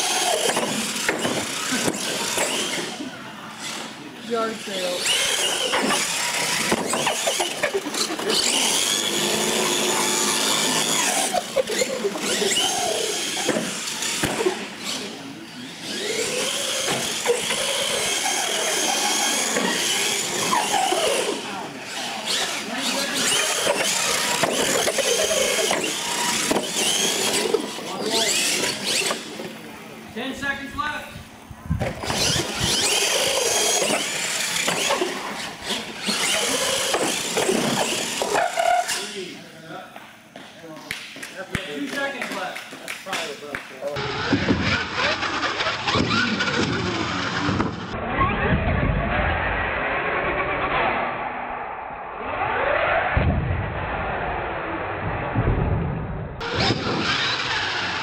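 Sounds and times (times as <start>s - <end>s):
electric motor whining: 3.6s - 29.8s, 31.6s - 39.3s, 56.4s - 58.0s.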